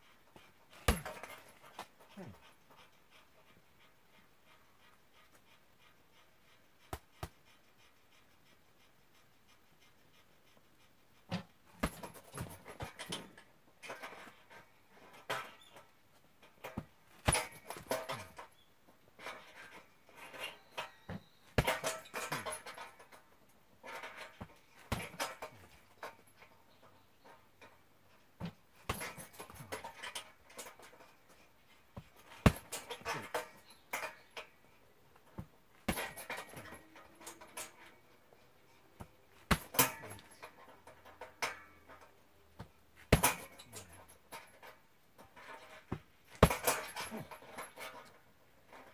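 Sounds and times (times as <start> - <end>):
hard breathing: 0.0 - 13.6
gloves thudding punching bag: 0.8 - 1.5, 39.4 - 40.0, 42.6 - 43.5, 45.9 - 46.9.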